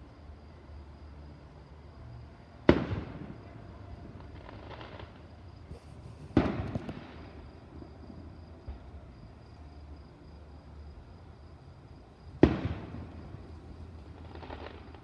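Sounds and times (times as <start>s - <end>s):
firework bursting with rumble: 2.7s - 3.5s, 4.2s - 8.9s, 12.4s - 15.0s.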